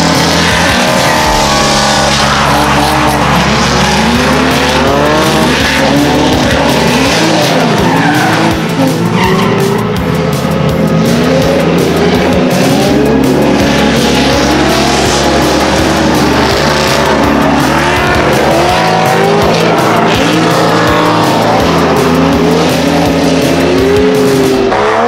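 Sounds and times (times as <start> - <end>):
car engine revving: 0.0 - 25.0
tires skidding: 0.0 - 25.0.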